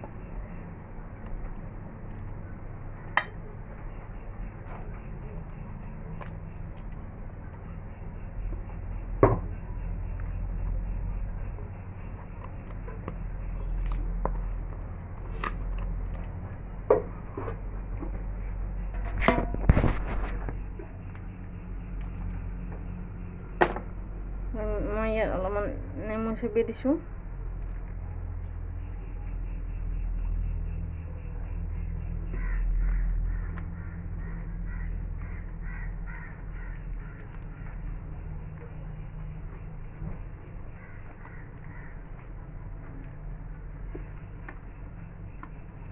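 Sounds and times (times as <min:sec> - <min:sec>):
steady low hum: 0:00.0 - 0:45.9
crow cawing: 0:32.1 - 0:38.0, 0:40.7 - 0:42.4.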